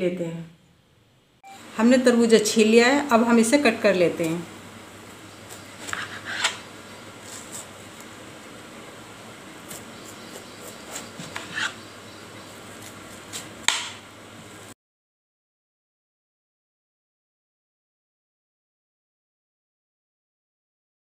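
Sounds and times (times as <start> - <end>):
knife slicing watermelon: 5.5 - 8.1, 9.6 - 11.8, 12.6 - 14.0.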